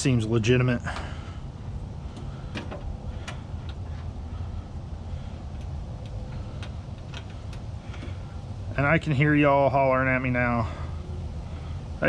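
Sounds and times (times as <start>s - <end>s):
steady low rumble: 0.0s - 12.0s
light sharp clicks and taps: 5.5s - 8.2s.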